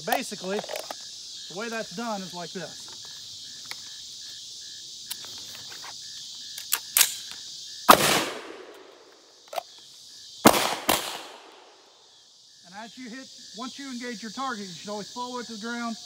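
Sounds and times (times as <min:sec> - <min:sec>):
insects buzzing: 0:00.0 - 0:16.0
handgun shots: 0:07.9 - 0:08.9, 0:10.5 - 0:11.7.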